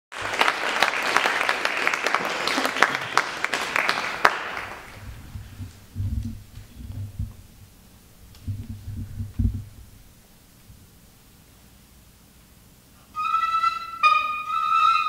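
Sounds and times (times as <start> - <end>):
audience applauding: 0.1 - 5.3
soft low thumps: 4.9 - 10.9.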